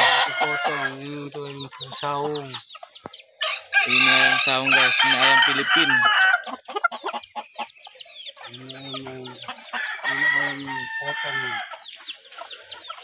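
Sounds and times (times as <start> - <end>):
chicks peeping: 0.0 - 13.0
low drawn-out chicken calls: 0.0 - 13.0.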